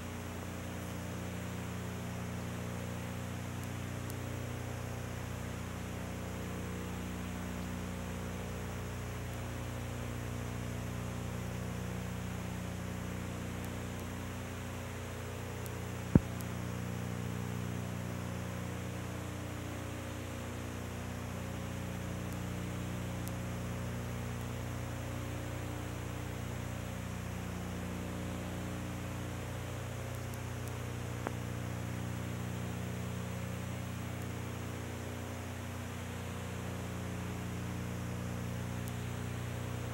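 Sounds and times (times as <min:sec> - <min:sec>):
electrical hum with hiss: 0:00.0 - 0:39.9
sharp click: 0:16.1 - 0:16.5.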